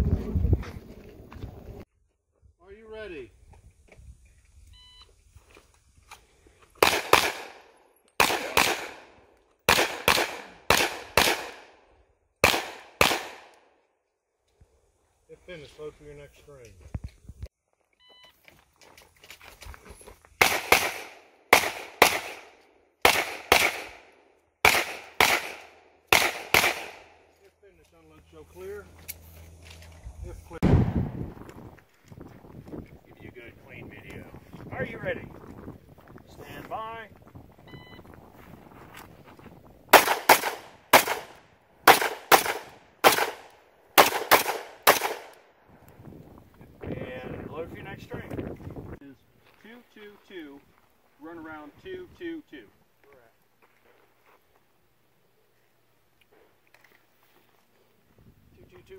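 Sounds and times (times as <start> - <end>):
handgun shots: 6.8 - 7.6, 8.2 - 9.0, 9.7 - 11.8, 12.4 - 13.6, 20.4 - 24.0, 24.6 - 27.1, 40.0 - 45.4.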